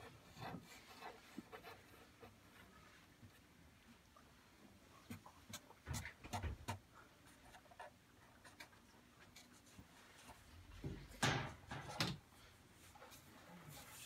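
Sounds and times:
marker scratching on wood: 0.0s - 2.6s.

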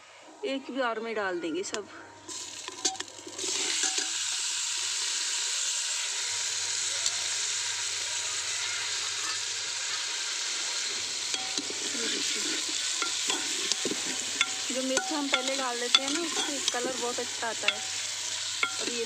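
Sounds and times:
vegetables sizzling in oil: 2.3s - 19.0s
steel ladle clinks: 11.3s - 11.7s, 13.0s - 17.0s, 17.6s - 18.0s, 18.6s - 19.0s.

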